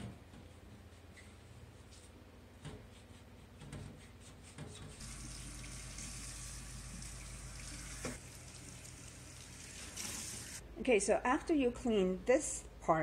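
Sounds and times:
faucet water splashing: 5.0 - 10.6.

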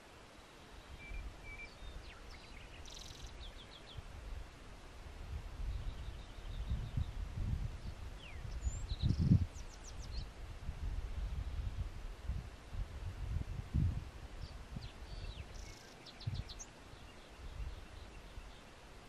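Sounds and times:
wild birds chirping: 0.0 - 4.2, 5.6 - 10.4, 14.3 - 19.0
gusting wind rumble: 3.9 - 15.6, 16.2 - 18.1.

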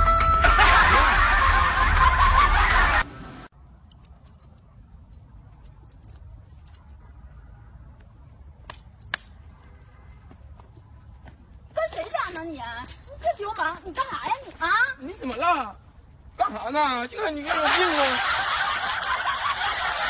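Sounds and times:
loud music: 0.0 - 3.1.

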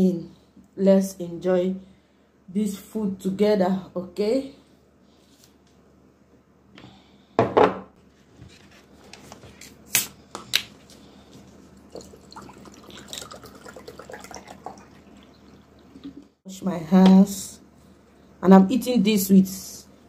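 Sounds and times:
water dripping: 11.5 - 16.3.

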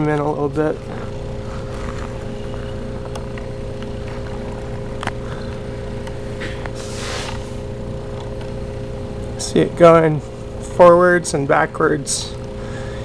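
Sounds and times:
low hum: 0.0 - 13.0
stepper motor whine: 0.0 - 13.0
short hiss: 6.8 - 7.5.

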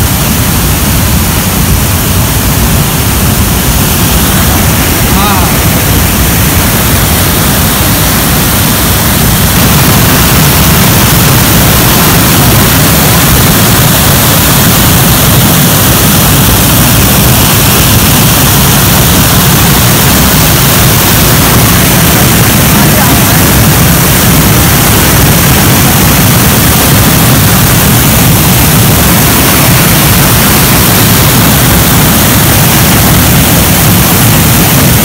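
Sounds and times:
waterfall crashing onto rock: 0.0 - 35.0.

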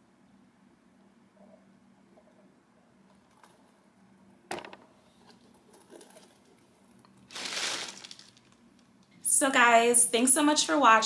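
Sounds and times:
paper rustle: 7.3 - 8.6.

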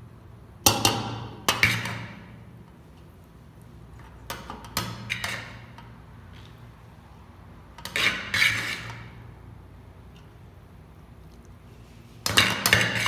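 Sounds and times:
spatula scraping a metal pot: 4.9 - 5.8, 7.8 - 9.2, 12.3 - 13.0.

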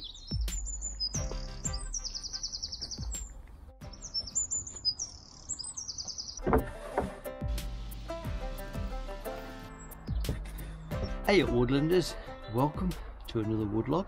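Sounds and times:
songbirds chirping and trilling: 0.0 - 14.0
music with low beat: 0.2 - 2.0, 2.9 - 4.2, 6.5 - 13.5.

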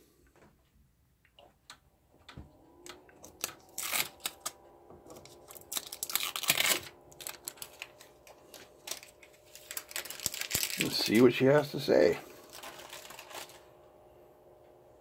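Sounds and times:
faint printer hum: 1.9 - 15.0
plastic film peeling crackle: 3.2 - 11.6, 12.3 - 13.8.

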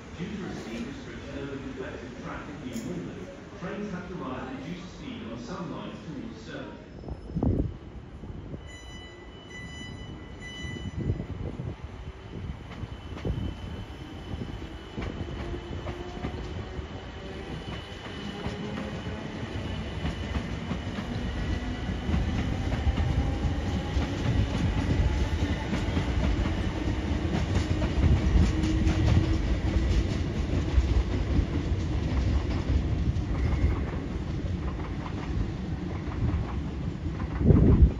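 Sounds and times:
train low rumble: 0.0 - 37.9
train wheels clicking on rails: 12.3 - 37.9.

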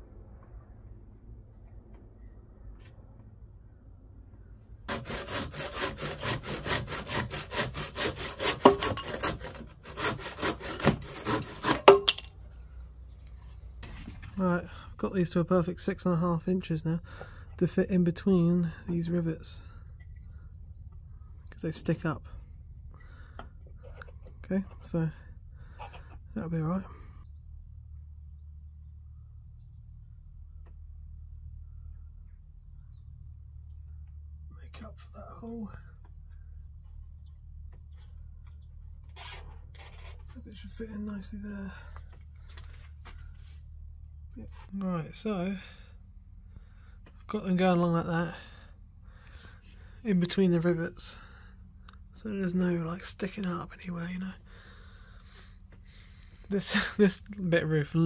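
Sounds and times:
steady low rumble: 0.0 - 4.9
hand saw cutting wood: 4.9 - 12.2
faint high bird chirps: 18.9 - 23.3, 26.6 - 41.4.

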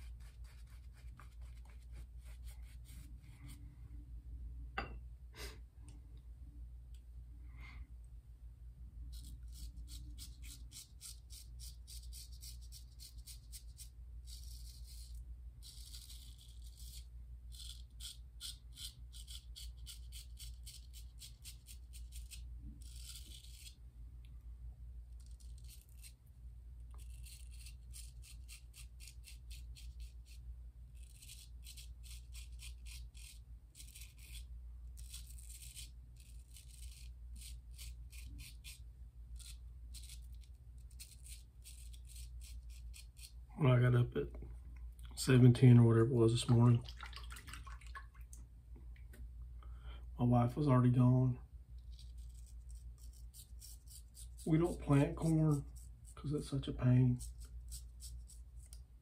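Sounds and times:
steady low hum: 0.0 - 25.2
razor rasping through whiskers: 9.1 - 23.8, 25.2 - 26.2, 26.9 - 43.4, 51.8 - 56.2, 57.2 - 58.8.

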